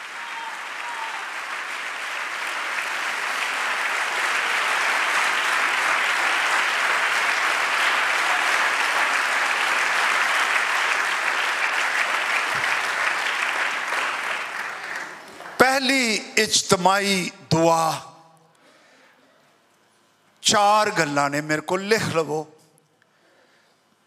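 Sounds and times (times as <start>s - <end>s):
congregation applauding: 0.0s - 17.7s.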